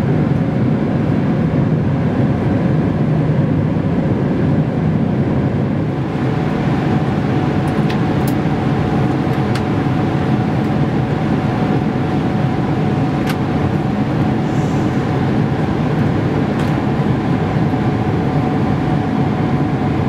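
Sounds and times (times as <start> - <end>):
aircraft cabin roar: 0.0 - 20.0.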